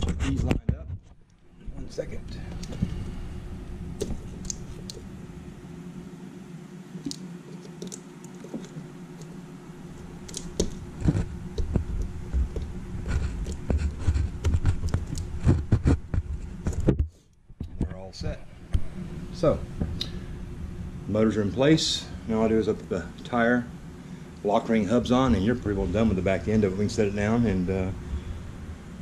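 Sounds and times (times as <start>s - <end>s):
plastic parts clicking and scraping: 10.3s - 16.0s.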